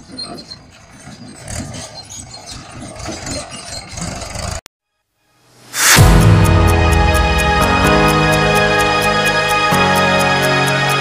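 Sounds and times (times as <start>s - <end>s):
low rumble: 5.8s - 9.7s.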